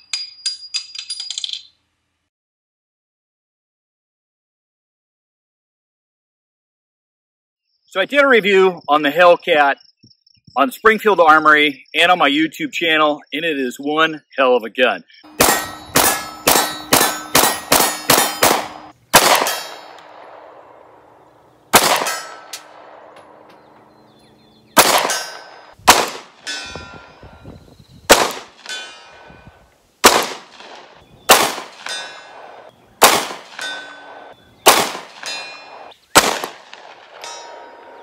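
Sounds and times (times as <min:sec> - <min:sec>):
steel plate ringing ding: 0:15.3 - 0:18.9, 0:19.5 - 0:20.0, 0:26.4 - 0:27.4, 0:28.7 - 0:29.3, 0:31.8 - 0:32.4, 0:33.5 - 0:34.2, 0:35.2 - 0:35.8, 0:37.2 - 0:38.0
pistol shots: 0:15.3 - 0:23.5, 0:24.8 - 0:26.6, 0:28.1 - 0:29.0, 0:30.0 - 0:38.0.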